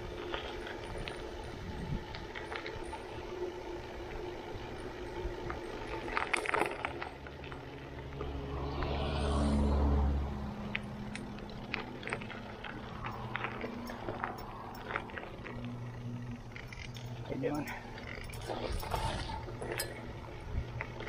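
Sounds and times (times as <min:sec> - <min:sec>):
bike rattling: 0:00.0 - 0:21.0
bike tyres crunching gravel: 0:00.0 - 0:21.0.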